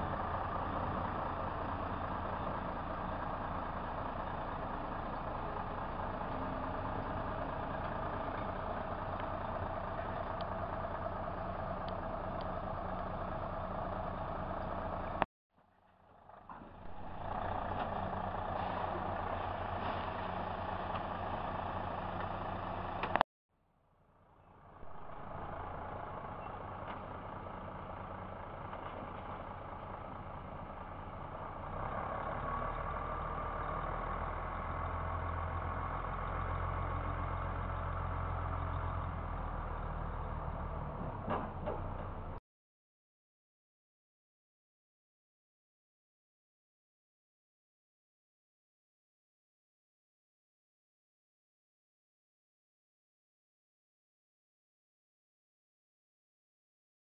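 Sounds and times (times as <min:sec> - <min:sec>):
diesel truck engine running: 0:00.0 - 0:15.2, 0:15.8 - 0:23.2, 0:24.0 - 0:42.4
click: 0:23.0 - 0:23.2.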